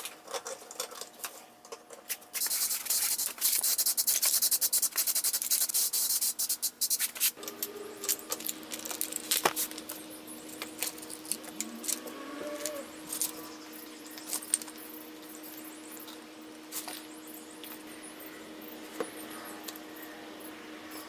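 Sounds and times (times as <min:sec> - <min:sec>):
steady low hum: 0:00.0 - 0:21.0
spray can hissing: 0:02.4 - 0:07.4.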